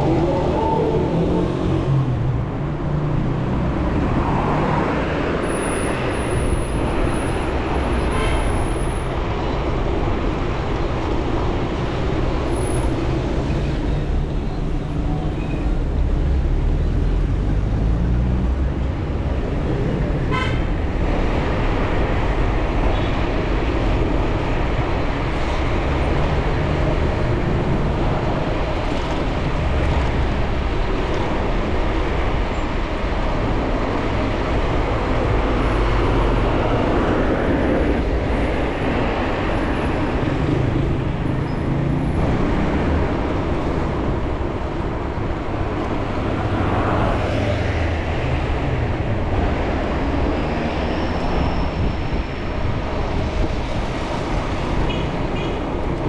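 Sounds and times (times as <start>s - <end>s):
city traffic noise: 0.0s - 56.0s
car horn toot: 20.3s - 20.6s.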